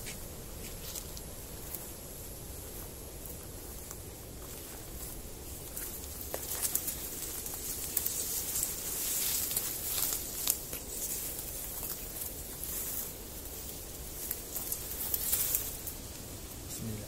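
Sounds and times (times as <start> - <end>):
grass rustling underfoot: 0.0 - 17.0
stems snapping: 3.8 - 16.7.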